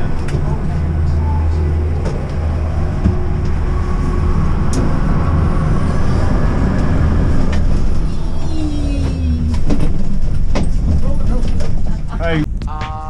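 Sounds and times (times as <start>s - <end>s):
faint whine: 0.0s - 11.1s
lift machinery rumble and hum: 0.0s - 13.0s.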